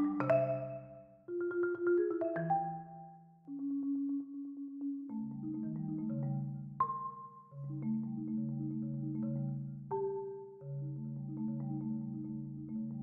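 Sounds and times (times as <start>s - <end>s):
high marimba note ringing: 0.0s - 1.1s
marimba tremolo rolls: 0.0s - 6.6s, 7.6s - 13.0s.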